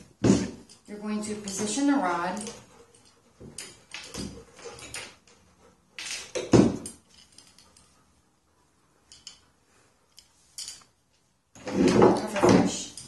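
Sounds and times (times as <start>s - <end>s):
metal knocks and clatter on table: 6.0s - 7.4s.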